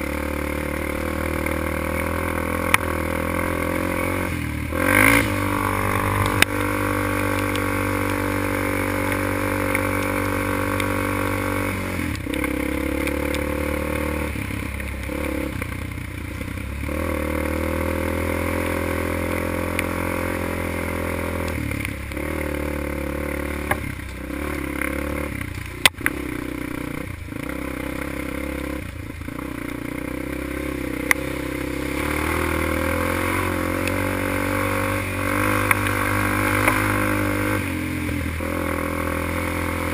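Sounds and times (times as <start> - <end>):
quad engine running hard: 0.0 - 39.9
tires splashing through puddles: 0.0 - 39.9
sharp knocks over bumps: 5.6 - 11.0, 23.5 - 26.3.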